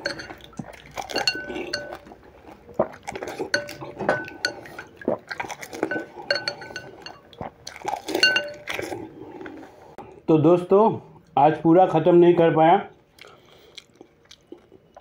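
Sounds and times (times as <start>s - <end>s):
clinks against glass bowl: 0.0s - 2.1s, 3.5s - 5.0s, 5.8s - 7.3s, 8.2s - 8.7s
liquid sloshing: 0.0s - 9.4s.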